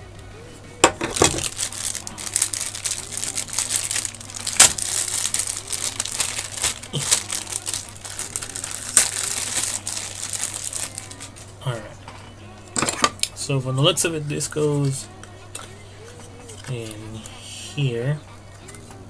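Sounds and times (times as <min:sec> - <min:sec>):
plastic bag crinkling: 0:00.9 - 0:11.5.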